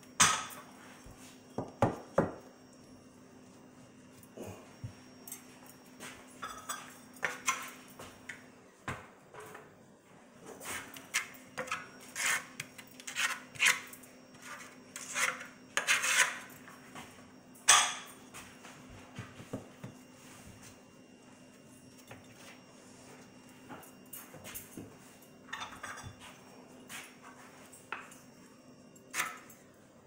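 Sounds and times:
tiles scraping: 10.6 - 16.5.

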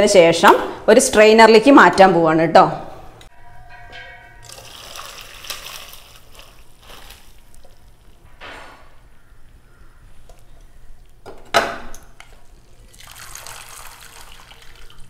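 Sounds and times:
water pouring through strainer: 4.4 - 7.6, 12.8 - 15.0.

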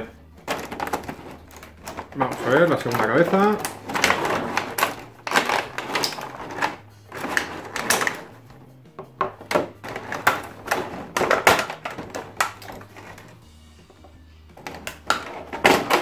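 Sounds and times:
plastic packaging crackling: 0.4 - 8.5, 9.4 - 13.4.

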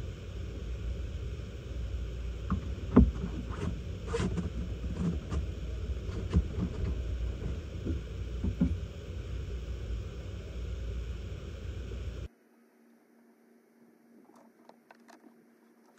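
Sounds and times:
steady low rumble: 0.0 - 12.3
irregular knocks and clicks: 6.1 - 8.8.

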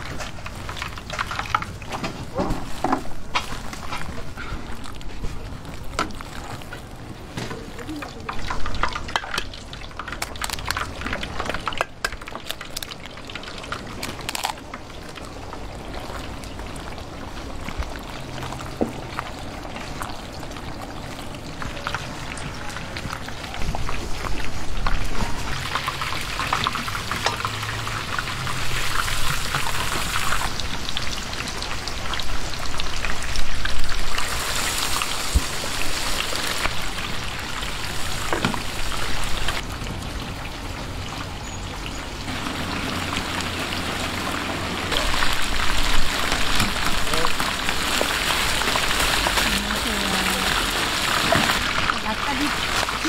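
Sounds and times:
food sizzling in hot oil: 14.8 - 39.7, 41.1 - 53.0.

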